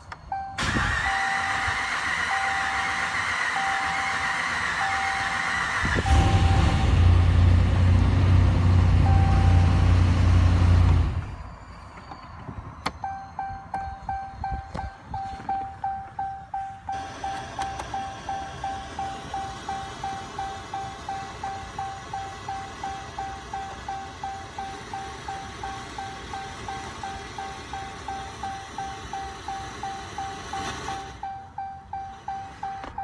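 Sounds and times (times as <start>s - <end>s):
engine cranking on starter: 0.6s - 7.4s, 17.0s - 23.3s
warning chime: 2.3s - 4.1s, 9.0s - 10.0s, 11.3s - 33.0s
engine idling: 16.2s - 33.0s.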